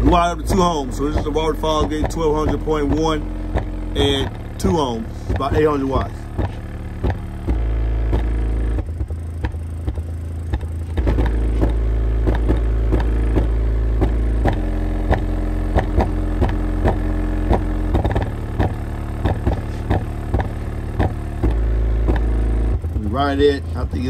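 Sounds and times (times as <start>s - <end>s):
beat of short clicks: 0.0s - 22.8s
deep bass notes: 0.0s - 24.0s.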